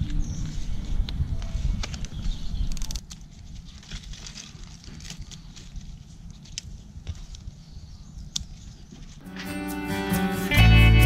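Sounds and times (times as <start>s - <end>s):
leaves rustling: 2.7s - 7.4s.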